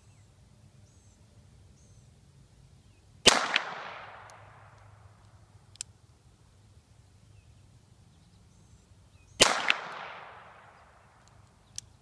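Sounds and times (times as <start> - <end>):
revolver gunshot: 3.2 - 4.8, 9.4 - 11.0.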